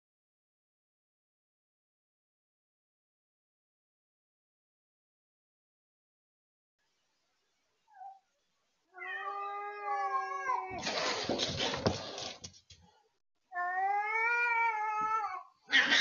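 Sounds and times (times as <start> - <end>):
cat yowling: 9.0 - 10.8, 13.5 - 16.0
scuffling: 10.8 - 12.8
cat hissing: 15.7 - 16.0.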